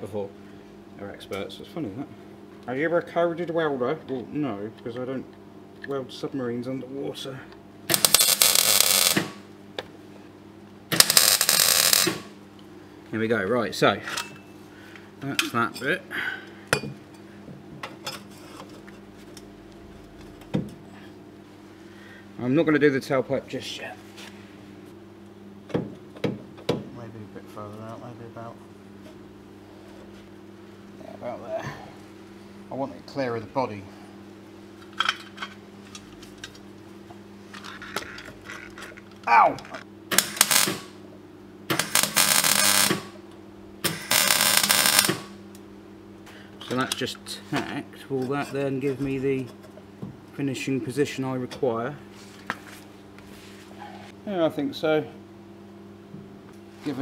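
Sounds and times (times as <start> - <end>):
steady low hum: 0.0 - 57.0
arc welder crackling: 7.9 - 9.5, 10.9 - 12.5, 37.7 - 41.0, 41.7 - 45.7.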